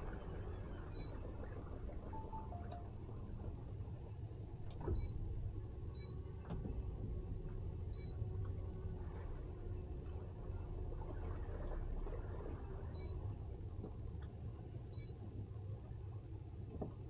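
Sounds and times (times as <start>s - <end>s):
short high chirps: 2.2s - 2.9s.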